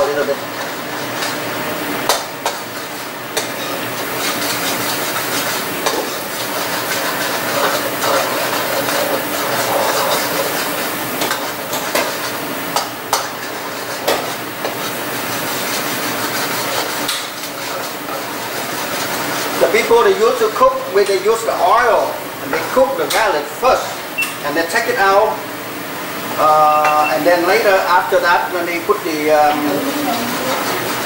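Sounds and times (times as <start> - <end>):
garlic sizzling in butter: 0.0 - 26.6, 27.2 - 31.0
spoon scraping a pan: 2.4 - 20.0, 29.7 - 31.0.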